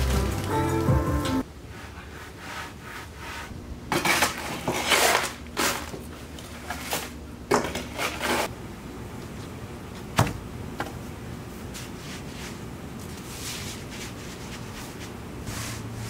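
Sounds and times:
metal tool scraping concrete: 3.9s - 5.9s.

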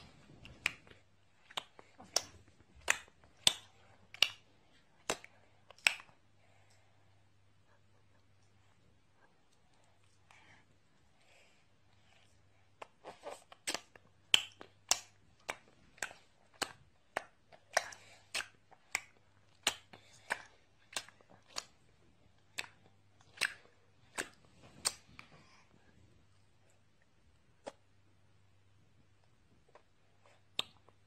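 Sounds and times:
baby's lips smacking: 22.5s - 25.4s.

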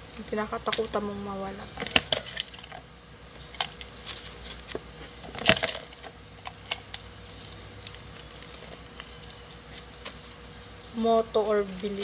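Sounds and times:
paper slips rustling and crinkling: 5.4s - 12.0s.

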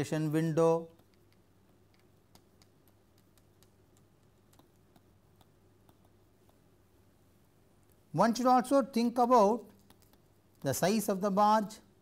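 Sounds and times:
low steady hum: 0.0s - 12.0s
stylus tapping on tablet screen: 0.9s - 6.8s, 9.8s - 10.7s.

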